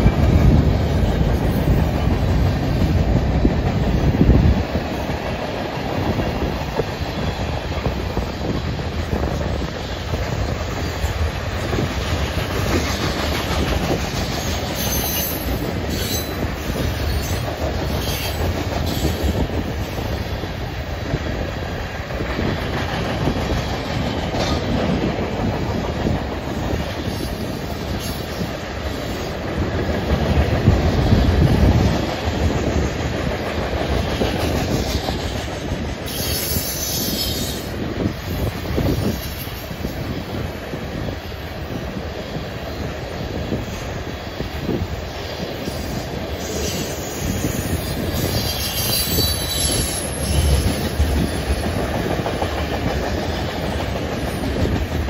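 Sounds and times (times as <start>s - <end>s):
train wheels rumbling on rail: 0.0s - 55.0s
high wheel squeals: 46.5s - 51.5s.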